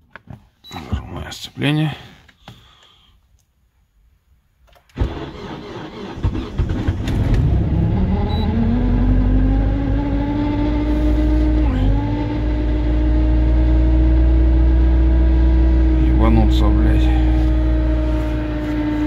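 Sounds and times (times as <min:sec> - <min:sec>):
car engine cranking and starting: 0:04.7 - 0:19.0.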